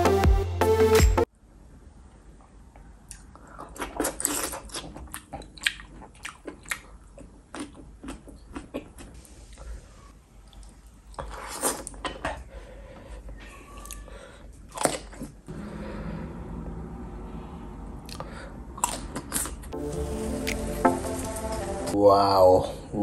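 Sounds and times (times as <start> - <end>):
person chewing food: 3.0 - 9.6, 10.4 - 15.5, 18.0 - 19.8.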